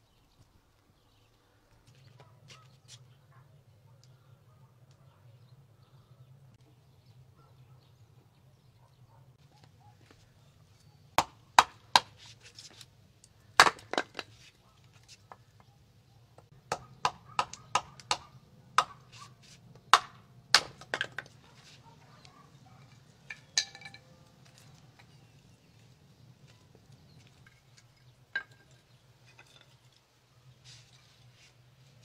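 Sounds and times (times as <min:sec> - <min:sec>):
hatchet chopping firewood: 0:11.2 - 0:12.3, 0:13.6 - 0:14.3, 0:16.4 - 0:21.4.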